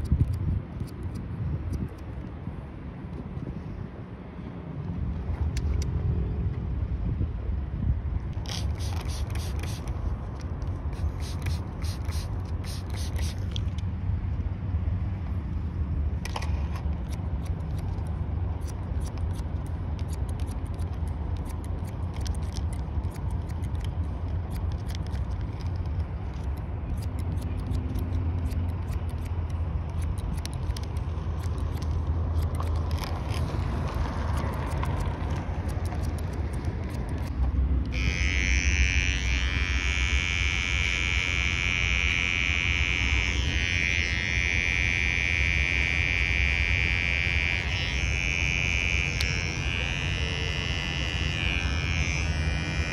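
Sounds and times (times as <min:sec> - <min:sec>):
scissors snipping hair: 0:00.0 - 0:02.1, 0:10.5 - 0:13.9, 0:16.3 - 0:33.5, 0:34.2 - 0:40.3
steady low rumble: 0:00.0 - 0:52.9
electric hair trimmer buzzing: 0:11.0 - 0:13.4, 0:37.0 - 0:52.9.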